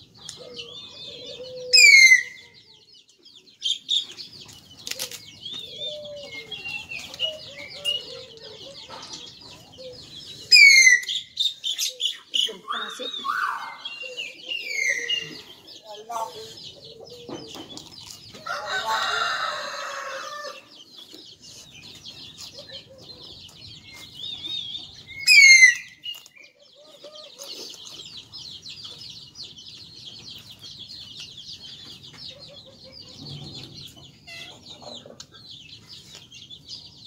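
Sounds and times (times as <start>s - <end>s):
small birds twittering: 0.0s - 37.0s
rooster crowing: 18.4s - 20.7s.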